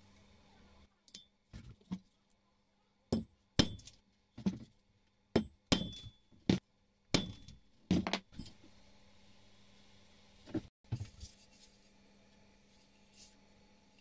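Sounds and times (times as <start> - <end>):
hammer striking steel punch: 3.2 - 4.0, 5.4 - 8.0.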